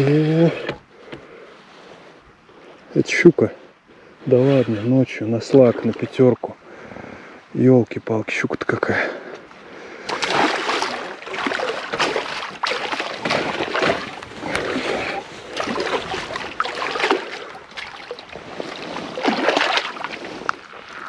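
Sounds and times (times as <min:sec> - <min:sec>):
fish splashing in water: 0:10.0 - 0:21.0.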